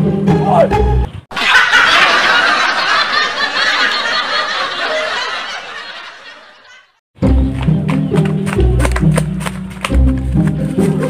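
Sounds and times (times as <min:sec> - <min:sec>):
laugh track: 0:01.3 - 0:07.0.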